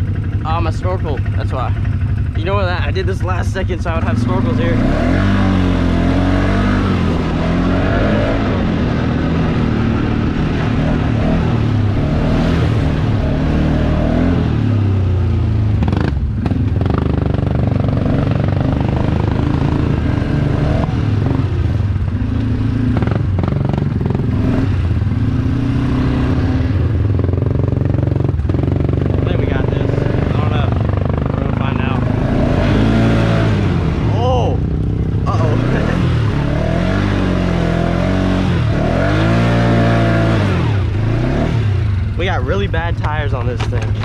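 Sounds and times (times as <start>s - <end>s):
atv engine revving: 0.0s - 44.0s
sharp knocks and clatters: 43.0s - 44.0s.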